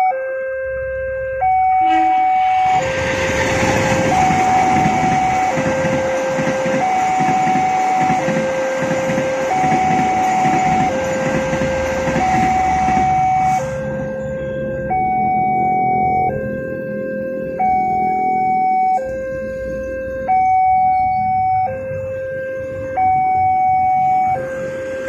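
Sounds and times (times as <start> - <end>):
two-tone crossing alarm: 0.0 - 25.0
train coaches rumbling and clattering: 2.4 - 14.5, 23.4 - 25.0.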